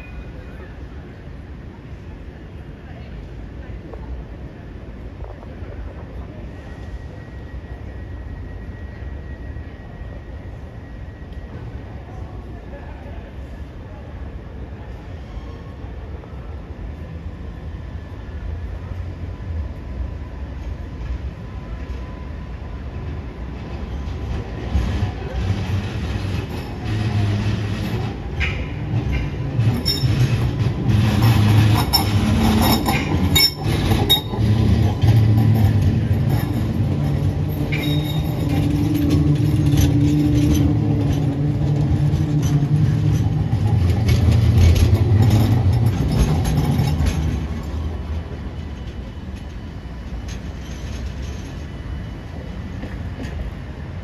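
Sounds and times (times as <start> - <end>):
tram rumbling past: 0.0 - 54.0
wheel squeals: 23.9 - 48.0.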